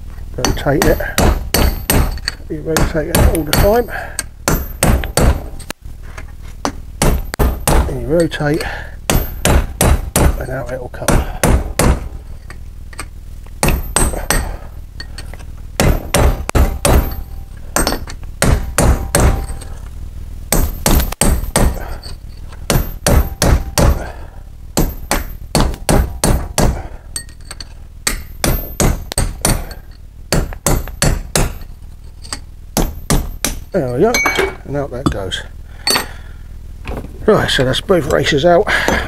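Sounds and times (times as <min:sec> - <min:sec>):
hammer striking punch on steel: 0:00.4 - 0:05.7, 0:07.0 - 0:07.9, 0:09.1 - 0:12.2, 0:13.6 - 0:14.6, 0:15.8 - 0:19.7, 0:20.5 - 0:22.0, 0:22.7 - 0:24.1, 0:24.8 - 0:27.3, 0:28.1 - 0:31.7.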